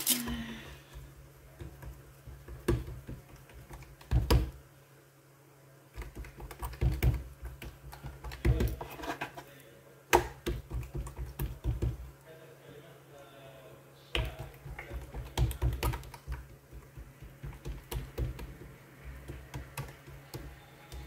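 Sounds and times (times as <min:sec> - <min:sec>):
low steady hum: 0:00.0 - 0:21.0
hands patting dough on wooden board: 0:00.3 - 0:04.6, 0:05.9 - 0:08.9, 0:10.1 - 0:12.1, 0:14.1 - 0:21.0.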